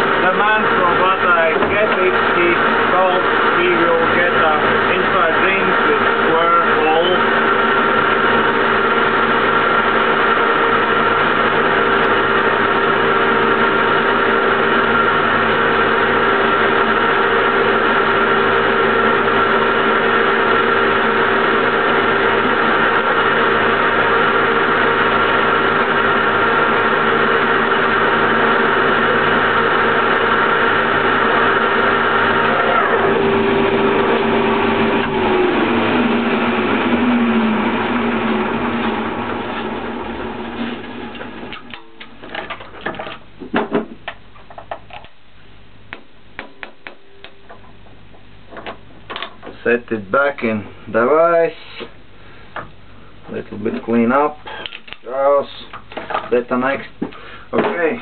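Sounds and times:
lathe motor whining: 0.0s - 41.8s.

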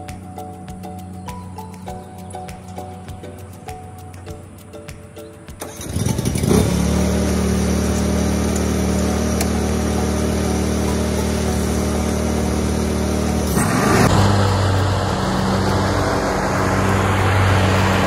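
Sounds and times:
mower engine starting and running: 5.6s - 18.0s.

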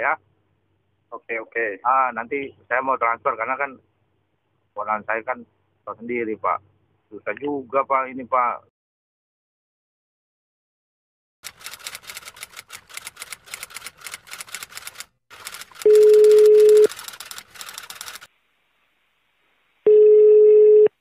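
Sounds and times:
rapid typing clicks: 11.4s - 18.3s
telephone ringback tone: 15.8s - 16.9s, 19.9s - 21.0s.

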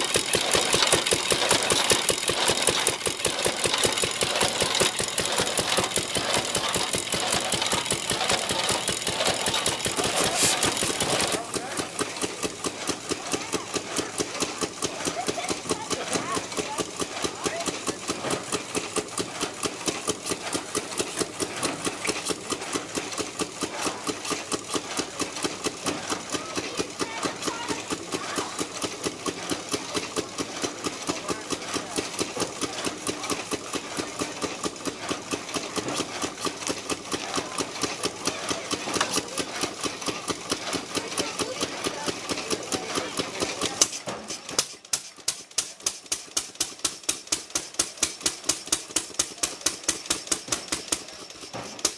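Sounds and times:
saw blade rasping through wood: 0.0s - 11.4s
single-cylinder engine popping: 0.0s - 51.9s.

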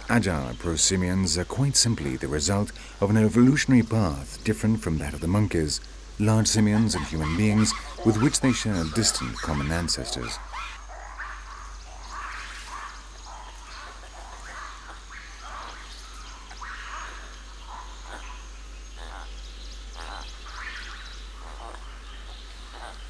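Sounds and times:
chirping animal calls: 6.2s - 23.0s.

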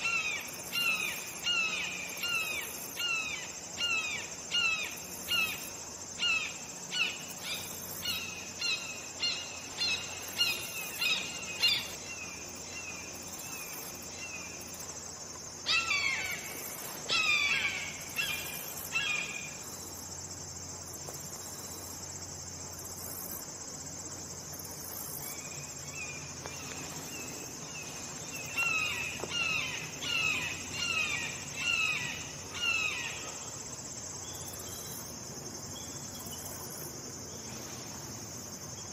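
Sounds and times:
high drone of insects: 0.0s - 38.9s.

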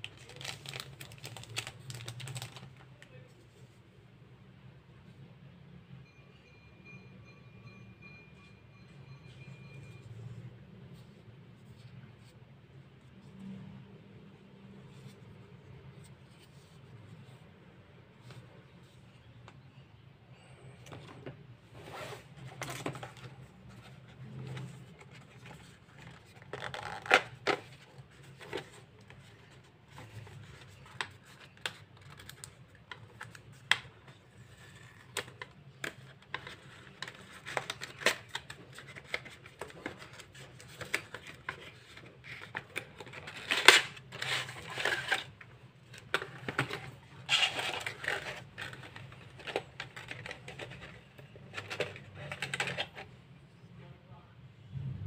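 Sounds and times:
packaging rustling: 0.0s - 2.8s, 21.7s - 33.8s, 34.4s - 53.0s.

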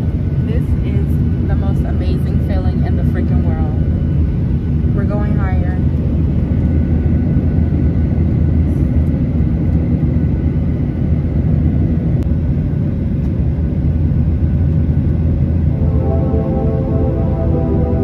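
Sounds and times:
faint steady whine: 0.0s - 18.0s
jet engine cabin rumble: 0.0s - 18.0s.

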